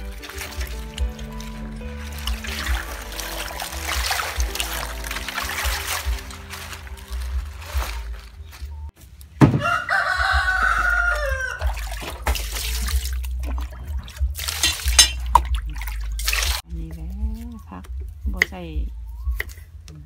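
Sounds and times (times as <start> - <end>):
water splashing in metal basin: 0.0 - 8.3, 10.3 - 16.7
rooster crowing: 9.5 - 11.8.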